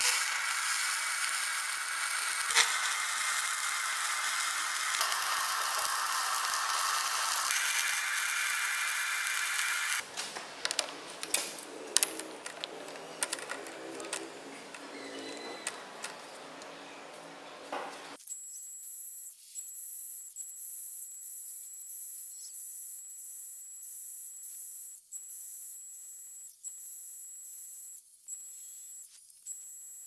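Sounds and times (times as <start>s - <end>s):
welding arc hissing: 0.0s - 10.1s.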